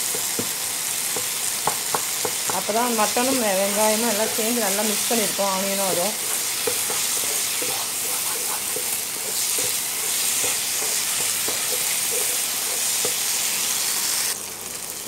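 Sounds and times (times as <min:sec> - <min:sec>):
meat sizzling in pan: 0:00.0 - 0:15.0
wooden spatula scraping pan: 0:03.2 - 0:13.8.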